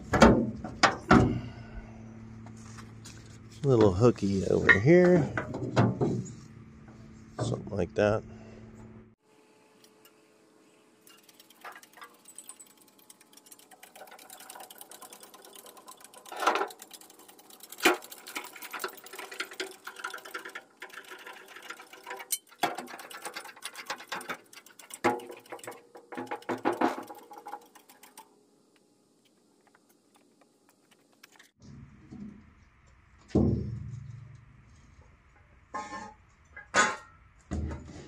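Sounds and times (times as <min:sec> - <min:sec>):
rattling metallic clicking: 0:11.0 - 0:28.3.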